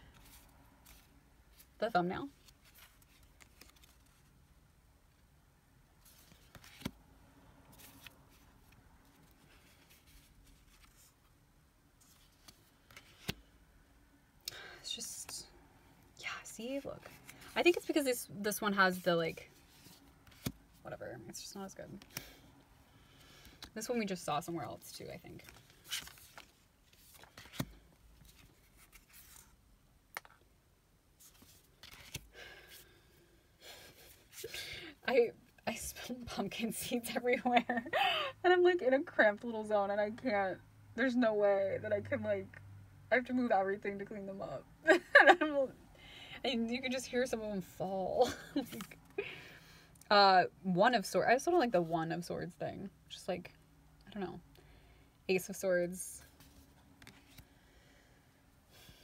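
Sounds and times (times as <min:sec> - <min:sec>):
cards sliding and rustling: 0:02.4 - 0:04.3, 0:06.0 - 0:07.0, 0:07.7 - 0:11.2, 0:12.0 - 0:13.5, 0:19.6 - 0:20.6, 0:25.4 - 0:29.6, 0:31.2 - 0:32.8, 0:48.6 - 0:49.0, 0:56.3 - 0:57.5.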